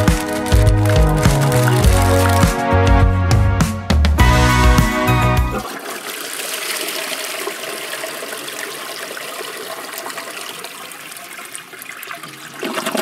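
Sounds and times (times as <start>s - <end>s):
toilet flushing: 5.6s - 13.0s.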